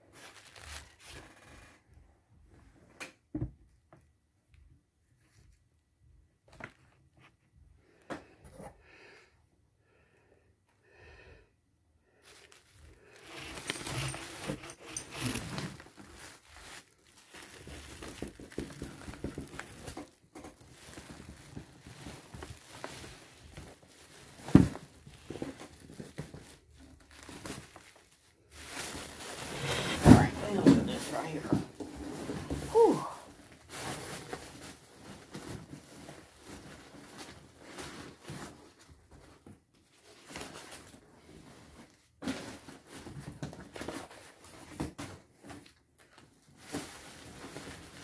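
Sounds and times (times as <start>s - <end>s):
paper and plastic bags rustling: 0.1s - 1.7s, 12.2s - 48.0s.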